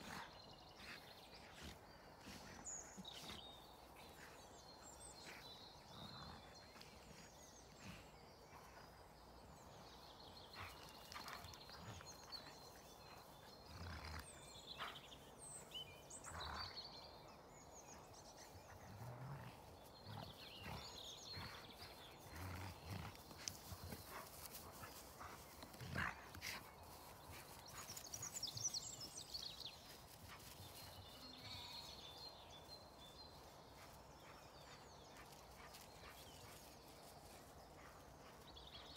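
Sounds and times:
birds chirping: 0:00.0 - 0:38.9
dogs scuffling on grass: 0:10.5 - 0:15.6, 0:18.5 - 0:38.9.

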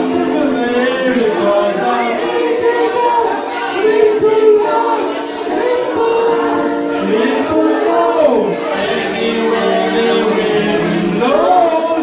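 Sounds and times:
man singing into microphone: 0:00.0 - 0:12.0.

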